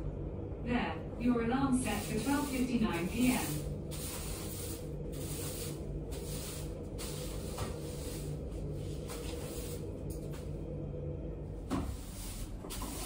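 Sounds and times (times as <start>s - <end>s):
low hum: 0.0s - 13.0s
rustling and shuffling: 2.3s - 10.6s.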